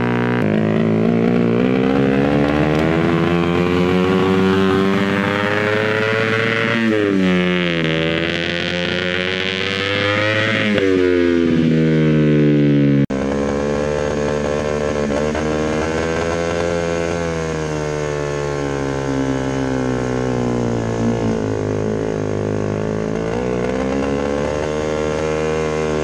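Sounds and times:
kart engine revving unevenly: 0.0 - 26.0.

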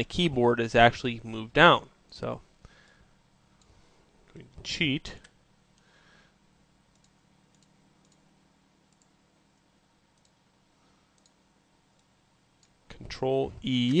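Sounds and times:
faint low hum: 0.0 - 14.0
computer mouse clicks: 6.9 - 8.3, 8.9 - 9.2, 10.1 - 10.4, 11.2 - 12.8.

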